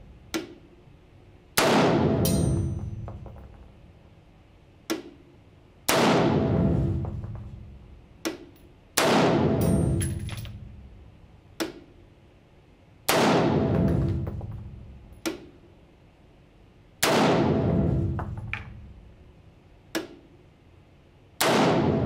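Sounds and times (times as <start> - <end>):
rifle shots echoing indoors: 1.5 - 4.0, 5.0 - 11.0, 13.0 - 15.7, 16.9 - 20.3, 21.2 - 22.0.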